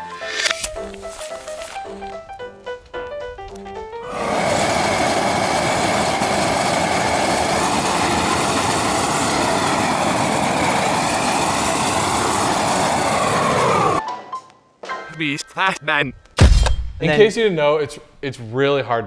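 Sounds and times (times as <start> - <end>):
weed torch burning with rushing noise: 4.1 - 14.0.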